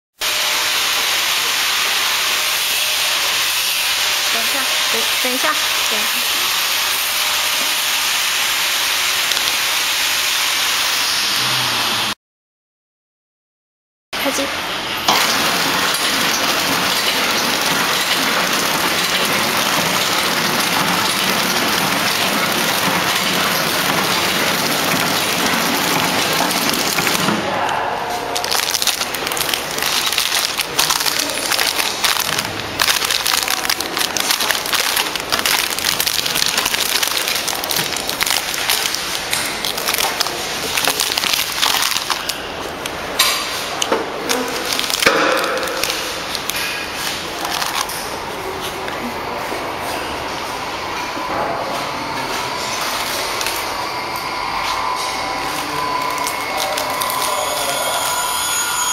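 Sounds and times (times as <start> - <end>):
wrapping machine hissing: 0.2 - 12.2, 17.5 - 27.4, 28.2 - 47.9
plastic film crinkling: 9.0 - 9.6, 18.5 - 27.3, 28.2 - 48.0, 55.9 - 58.1.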